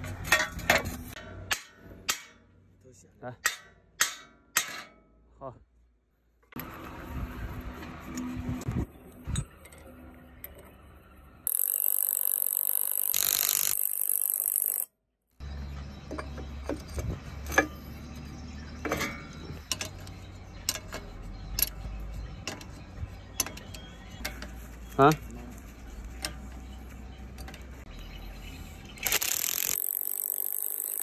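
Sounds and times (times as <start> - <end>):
metal clinks and knocks: 18.7 - 25.3.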